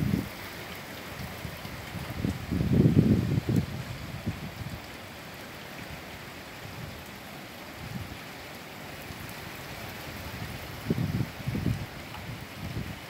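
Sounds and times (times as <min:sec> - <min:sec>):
wind gust buffeting microphone: 0:00.0 - 0:00.4, 0:01.2 - 0:04.9, 0:10.2 - 0:13.0
rain falling: 0:00.0 - 0:13.0.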